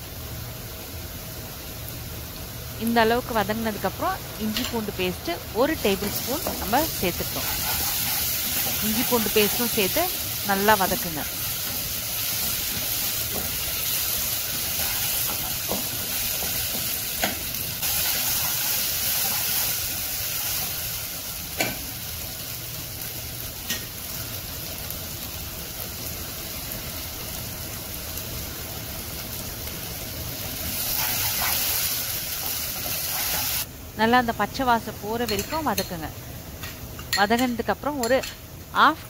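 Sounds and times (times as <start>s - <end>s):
onions sizzling in oil: 0.0s - 39.0s
wooden spatula scraping: 7.2s - 9.7s.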